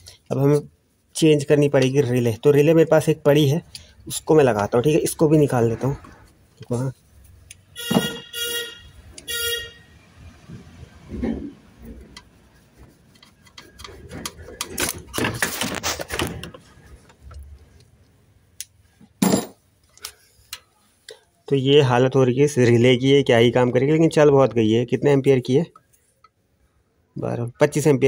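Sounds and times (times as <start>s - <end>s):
car horn beeps: 7.7s - 9.9s
pliers scraping and knocking: 13.0s - 17.5s.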